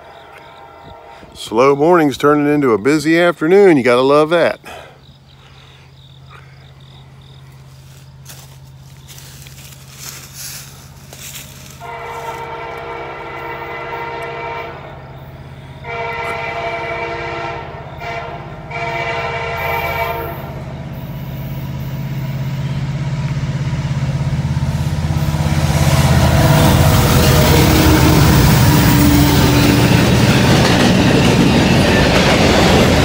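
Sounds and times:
locomotive air horn blasts: 0.0s - 1.4s, 11.2s - 21.3s, 24.5s - 30.2s
diesel locomotive engines: 0.0s - 33.0s
train wheels: 7.7s - 12.9s, 24.1s - 33.0s.

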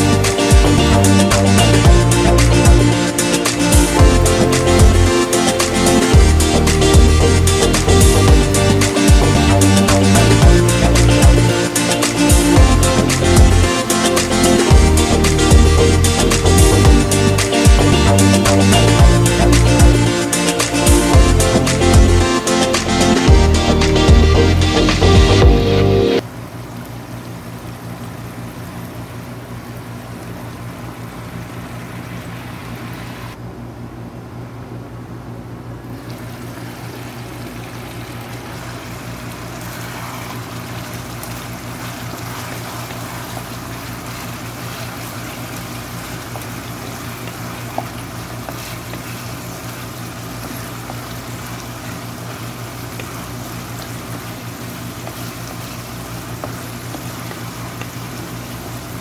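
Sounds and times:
low hum: 0.0s - 26.2s
sauce bubbling in frying pan: 36.1s - 59.0s.

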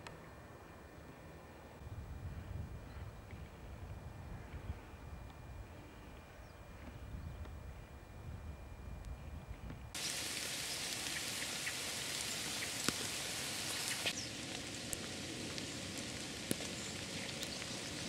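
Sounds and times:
raindrops clicking close by: 10.0s - 18.0s
steady rain falling: 10.0s - 18.0s.

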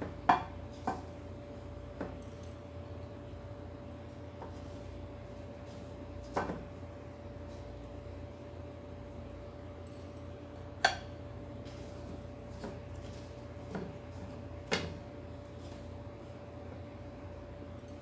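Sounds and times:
steady hum: 0.0s - 18.0s.

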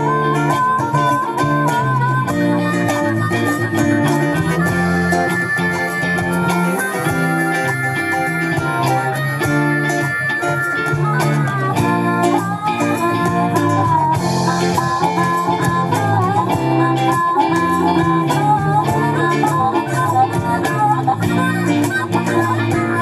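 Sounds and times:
bass guitar: 0.0s - 23.0s
drum kit beat: 0.0s - 23.0s
electric guitars: 0.0s - 23.0s.

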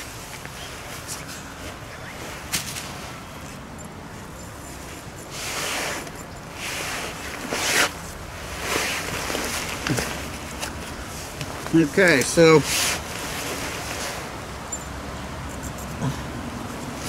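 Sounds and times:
zipper being pulled shut: 5.3s - 8.0s.

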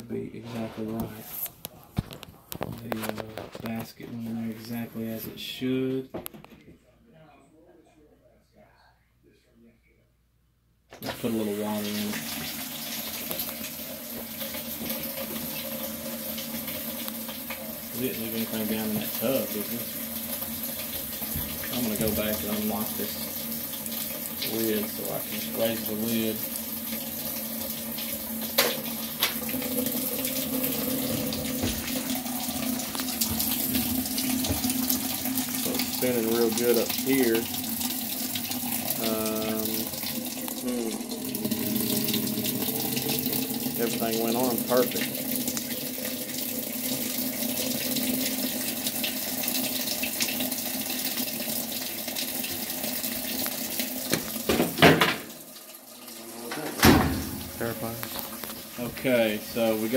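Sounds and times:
water running into washer tub: 0.0s - 6.1s, 11.0s - 59.9s
washing machine hum: 11.0s - 59.9s.

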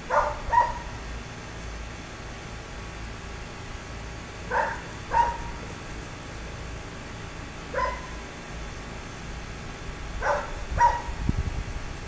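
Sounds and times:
dog barking: 0.1s - 0.9s, 4.5s - 5.5s, 7.7s - 8.2s, 10.2s - 11.2s.

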